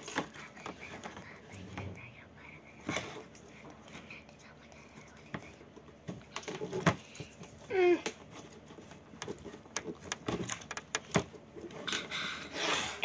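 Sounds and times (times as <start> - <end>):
child's vocal sound: 7.7 - 8.1.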